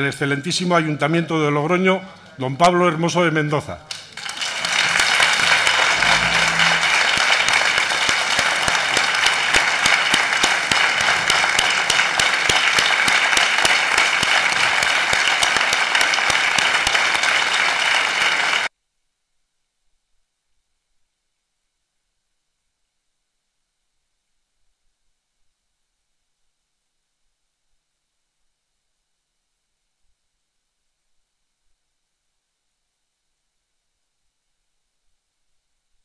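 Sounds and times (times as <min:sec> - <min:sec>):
large crowd applauding: 0:03.9 - 0:18.7.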